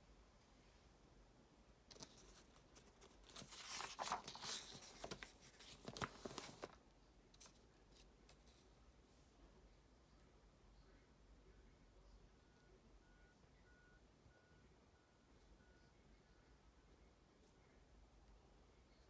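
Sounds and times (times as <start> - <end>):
paper page turning: 1.9 - 6.8.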